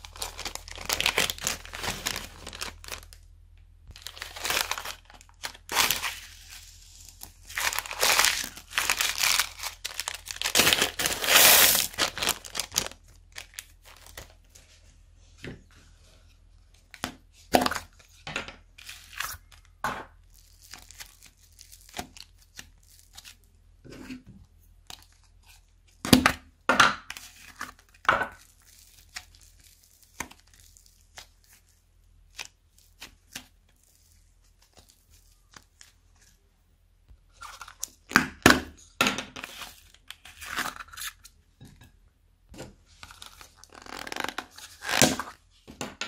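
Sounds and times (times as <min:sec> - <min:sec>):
plastic bags crinkling and tearing: 0:00.0 - 0:03.2, 0:03.9 - 0:14.5, 0:18.8 - 0:23.4, 0:27.5 - 0:31.7, 0:43.0 - 0:45.4.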